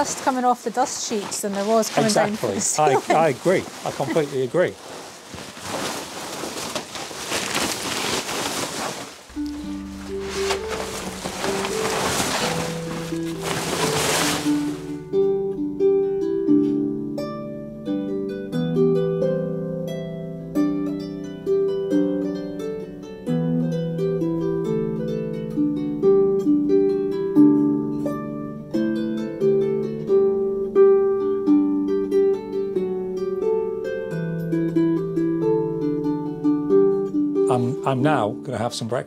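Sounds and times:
gentle harp-style melody: 9.3s - 39.0s.

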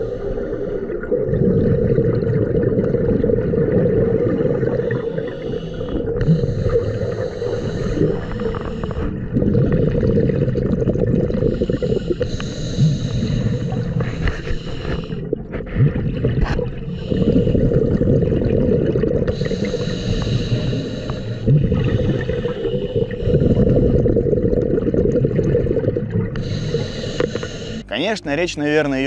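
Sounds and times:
exhaled bubbles gurgling: 0.0s - 27.9s
regulator breath hiss: 4.8s - 9.1s, 11.5s - 15.2s, 19.3s - 23.6s, 26.4s - 27.9s.

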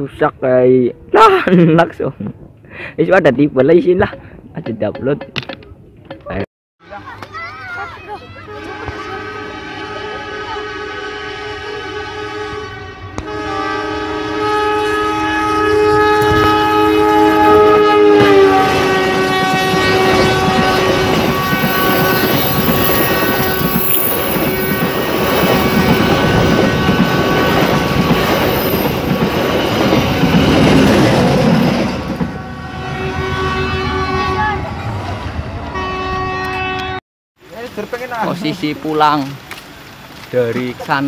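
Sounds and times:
train horn: 8.4s - 28.8s, 32.2s - 34.7s, 35.7s - 37.0s
train wheels clattering on rails: 19.4s - 32.4s.

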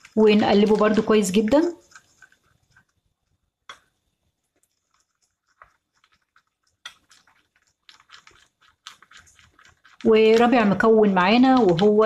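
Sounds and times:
spoon scraping glass bowl: 0.0s - 2.9s.

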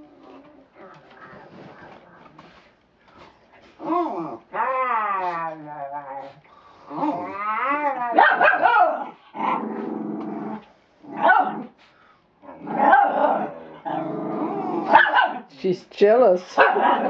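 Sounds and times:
puppies growling: 0.0s - 15.5s, 16.6s - 17.0s
puppies barking: 8.1s - 9.2s, 11.2s - 11.7s, 14.9s - 15.5s, 16.6s - 17.0s.

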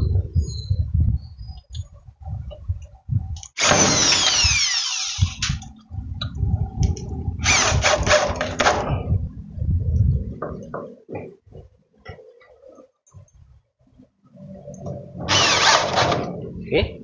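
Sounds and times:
screws being driven into metal: 3.6s - 5.6s, 15.3s - 16.3s.

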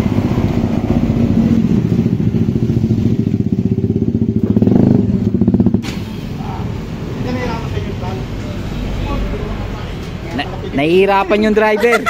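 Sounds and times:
motorcycle engine revving: 0.0s - 10.7s.

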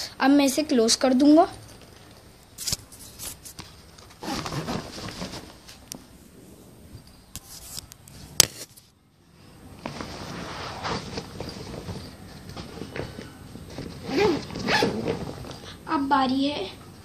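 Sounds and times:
fabric rustling: 1.8s - 15.7s
zipper rasping: 4.2s - 5.5s, 13.7s - 15.6s.

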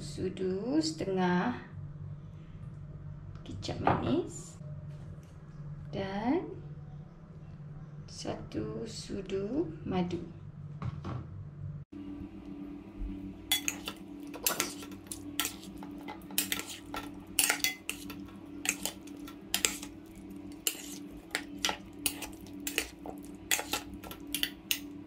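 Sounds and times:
steady low hum: 4.5s - 25.0s
metal spoon scraping steel bowl: 13.5s - 25.0s.

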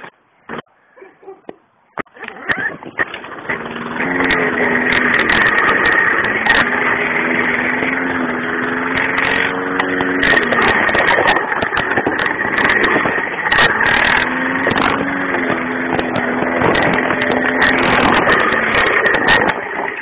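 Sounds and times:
lawn mower engine running: 2.0s - 20.0s.

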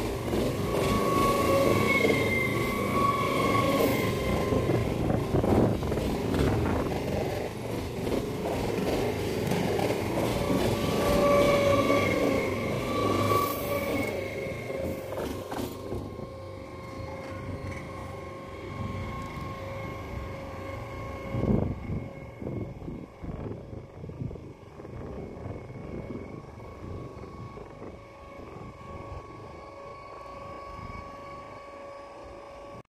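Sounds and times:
steady high whine: 0.0s - 32.8s
train wheel and rail noise: 0.0s - 32.8s
wind rumble on microphone: 4.1s - 11.6s, 17.3s - 31.6s.

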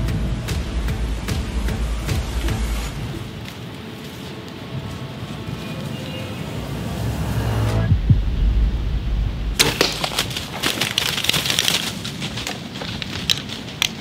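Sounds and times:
deer running through dry leaves: 2.8s - 6.7s, 9.6s - 14.0s
dull low bow thump: 7.1s - 9.8s.

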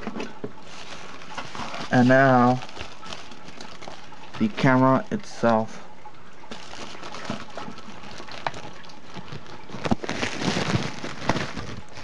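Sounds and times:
cardboard rustling: 0.0s - 4.7s, 6.5s - 12.0s
plastic bag crinkling: 0.0s - 5.0s, 6.4s - 12.0s
steady hiss: 0.6s - 5.8s.

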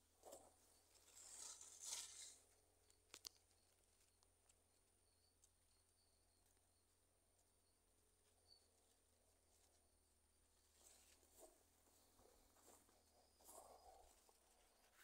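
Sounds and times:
leaves rustling: 1.0s - 2.4s
faint clicks: 2.8s - 4.6s.

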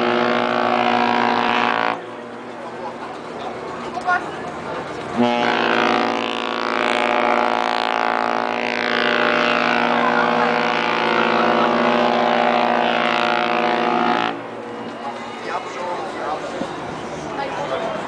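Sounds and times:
ship horn blast: 0.0s - 2.5s, 5.0s - 15.2s.

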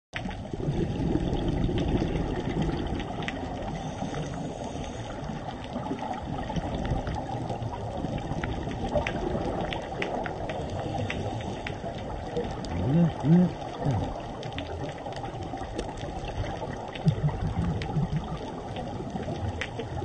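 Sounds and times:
muffled underwater rush and bubbling: 0.2s - 20.0s.

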